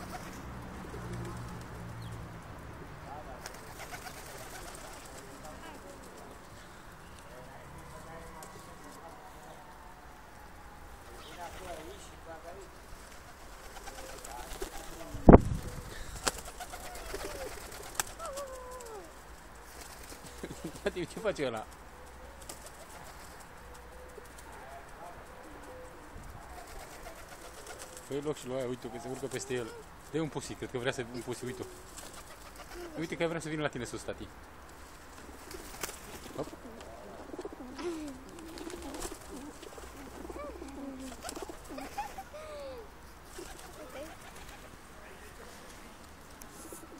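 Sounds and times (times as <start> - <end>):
pigeon wings flapping: 0.0 - 1.8, 3.4 - 6.3, 13.0 - 21.8, 22.4 - 24.6, 26.5 - 28.1, 31.4 - 33.0, 35.2 - 42.2, 43.2 - 44.7
pigeons cooing: 0.0 - 1.8, 13.1 - 33.3, 35.2 - 44.8.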